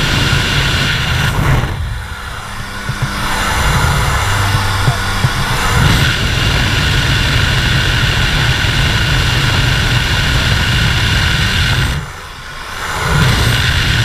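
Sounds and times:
propeller engine drone: 0.0s - 14.0s
wind rushing into microphone: 0.0s - 14.0s.

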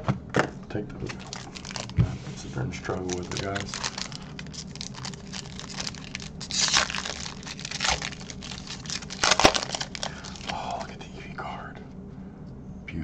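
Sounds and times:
foil wrapper crinkling: 1.0s - 2.0s, 2.9s - 11.0s
foil wrapper tearing: 1.0s - 2.0s, 2.9s - 10.9s.

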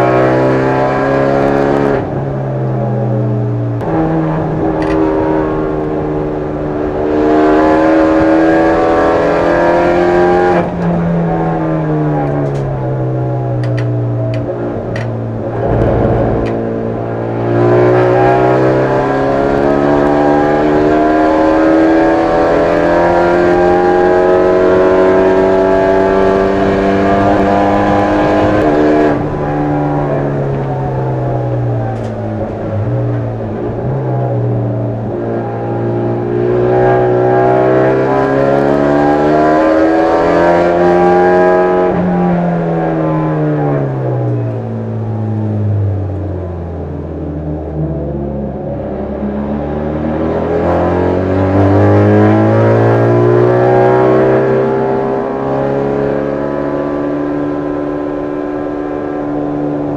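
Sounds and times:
race car engine revving: 3.8s - 45.3s
low thump: 15.4s - 17.8s.

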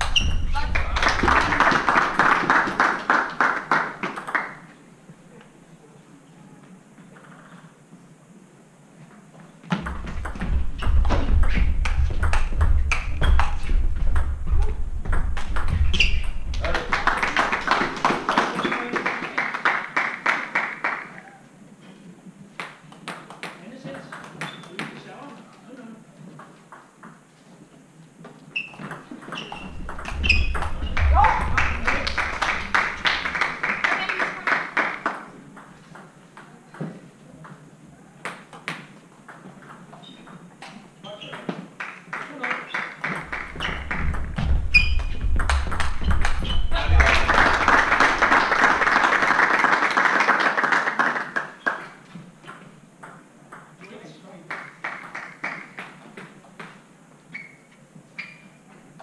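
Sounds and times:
shoe squeak: 0.0s - 0.7s, 10.7s - 11.7s, 12.9s - 13.8s, 15.7s - 16.6s, 24.4s - 24.8s, 28.5s - 31.8s, 40.0s - 40.4s, 41.0s - 41.5s, 43.5s - 46.9s, 57.3s - 58.8s
ping pong ball clicking off bats: 4.0s - 4.7s, 9.7s - 16.4s, 22.6s - 25.0s.

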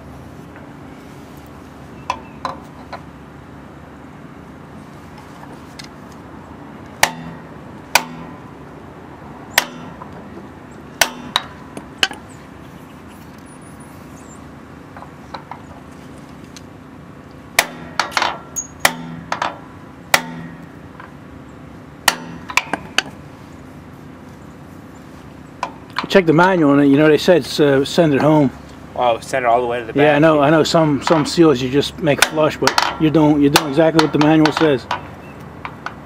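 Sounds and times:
hammer tapping metal: 7.0s - 8.4s, 9.5s - 10.2s, 11.0s - 12.2s, 17.6s - 20.7s, 22.1s - 23.2s.

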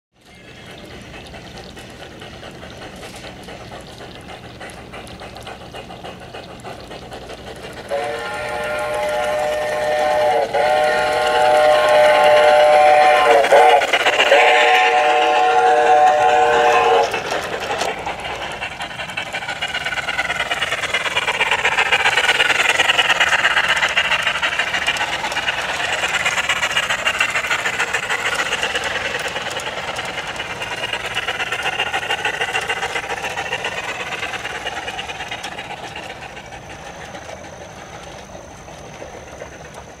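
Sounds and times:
model train clattering on track: 0.2s - 40.0s
model train chord whistle: 7.9s - 17.2s.

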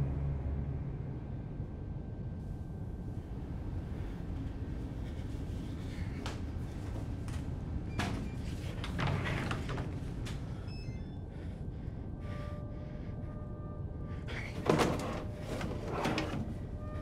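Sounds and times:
low steady rumble: 0.0s - 8.9s
sliding doors knocking and clattering: 14.4s - 16.7s.

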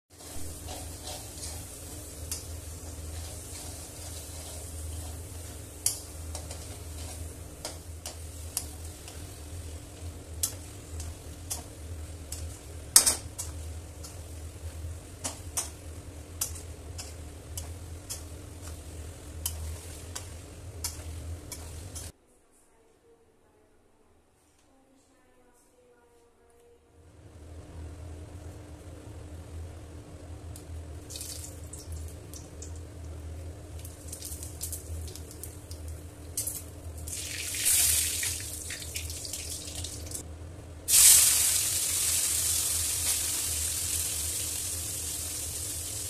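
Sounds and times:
chicken sizzling in a pan: 0.1s - 22.1s, 33.8s - 40.2s, 40.9s - 46.0s
steady low hum: 0.1s - 37.2s
spatula scraping a pan: 0.2s - 7.3s.

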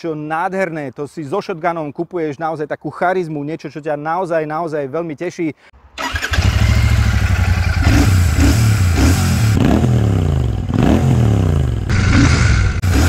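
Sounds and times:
motorcycle engine revving: 6.0s - 13.0s.

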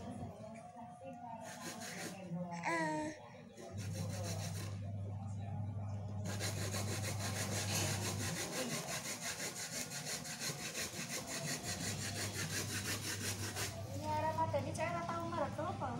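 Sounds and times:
rapid rhythmic scraping: 1.4s - 2.2s, 3.7s - 4.9s, 6.2s - 14.8s.

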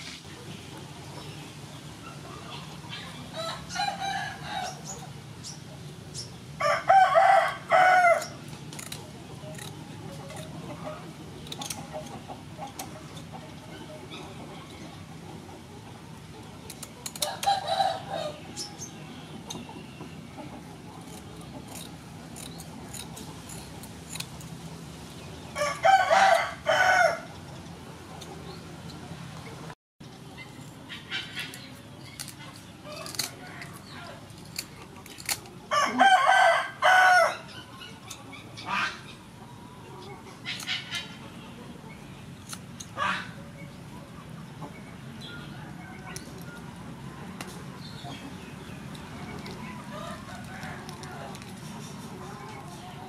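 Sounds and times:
rooster crowing: 6.6s - 8.3s, 25.6s - 27.3s, 35.7s - 37.5s
kitchen scissors snipping: 8.2s - 10.5s.

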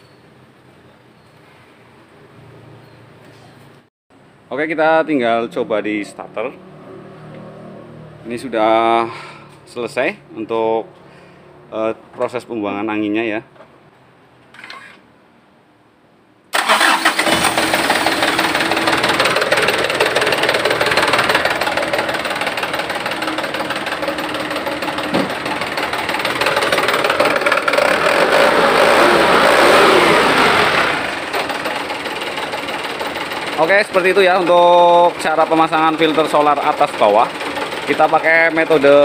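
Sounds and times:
diesel engine starter cranking: 16.5s - 39.0s
diesel truck engine running: 16.6s - 39.0s.

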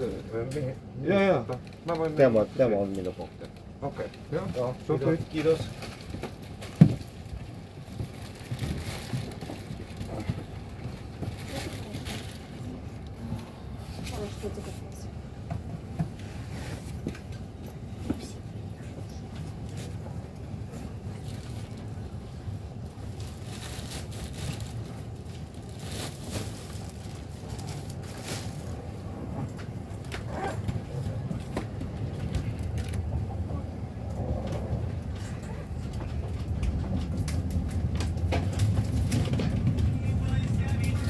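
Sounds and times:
train rumble on rails: 0.0s - 41.0s
wheels clicking over rail joints: 34.1s - 41.0s.

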